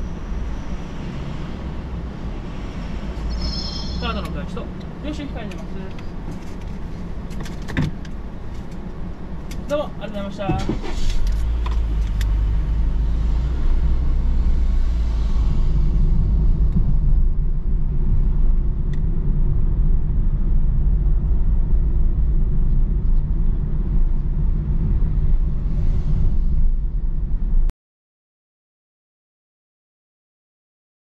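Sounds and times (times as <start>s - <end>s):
road noise hiss: 0.0s - 19.5s
car engine rumble: 0.0s - 27.7s.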